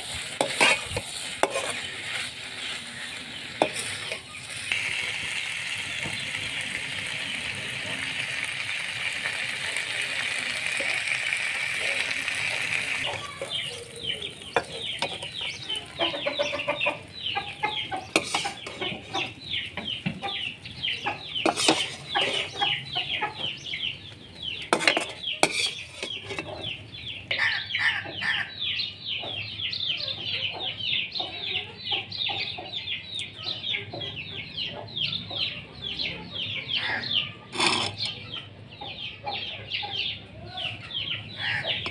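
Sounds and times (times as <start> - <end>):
potatoes sizzling in a wok: 0.0 - 23.9, 24.5 - 26.8
chickens chirping: 0.0 - 41.9
chickens clucking: 0.0 - 41.9.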